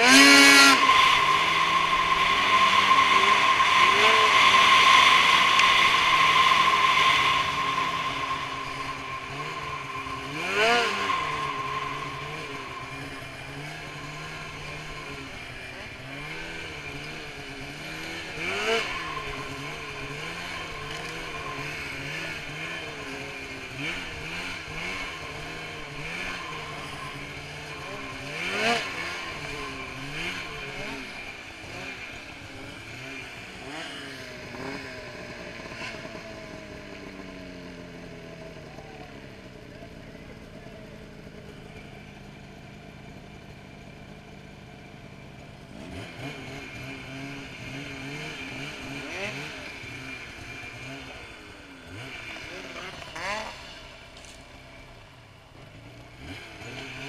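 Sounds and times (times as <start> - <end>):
snowmobile engine revving: 0.0 - 42.5, 45.0 - 57.0.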